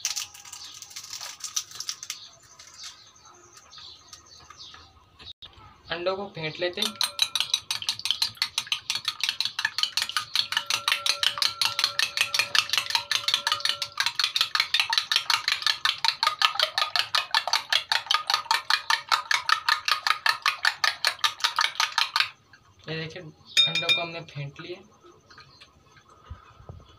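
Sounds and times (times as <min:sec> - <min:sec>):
spoon beating eggs in glass bowl: 0:06.4 - 0:22.4, 0:23.6 - 0:24.4.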